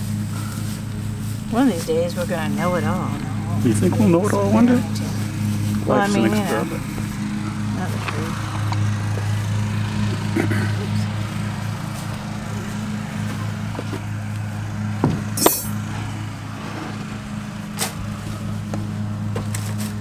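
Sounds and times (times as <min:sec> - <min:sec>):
wood shavings rustling: 0:00.0 - 0:08.5
steady engine-like hum: 0:00.0 - 0:20.0.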